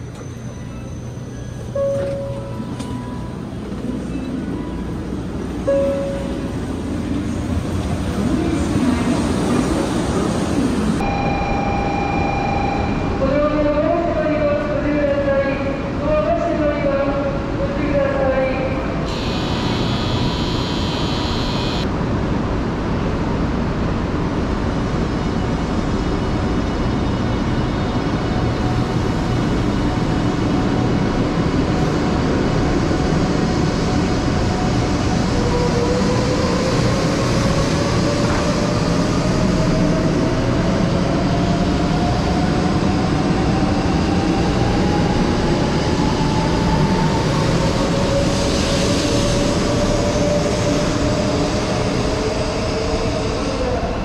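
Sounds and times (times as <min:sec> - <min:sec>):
rising motor whine: 0:19.1 - 0:21.9.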